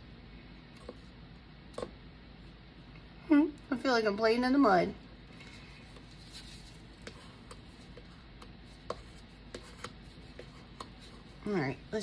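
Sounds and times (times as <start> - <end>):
stir stick tapping paper cup: 6.9 - 11.4.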